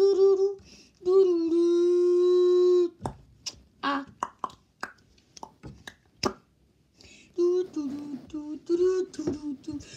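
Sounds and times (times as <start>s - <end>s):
child singing wordless tune: 0.0s - 3.0s, 3.8s - 4.2s, 7.4s - 9.9s.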